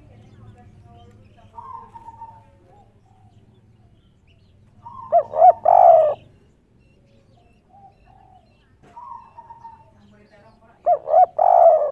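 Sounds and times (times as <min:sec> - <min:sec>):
faint bird chirping: 0:00.0 - 0:11.9
dove cooing: 0:01.5 - 0:03.9, 0:04.7 - 0:10.0, 0:10.8 - 0:11.9.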